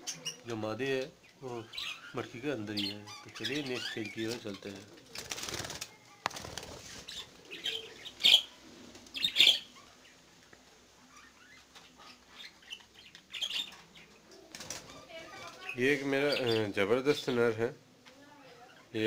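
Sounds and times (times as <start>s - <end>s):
budgerigars chirping: 1.6s - 4.7s, 6.9s - 8.5s, 9.2s - 10.1s, 11.1s - 14.2s, 15.1s - 16.7s
budgerigars flapping wings: 5.0s - 7.4s, 14.5s - 15.8s.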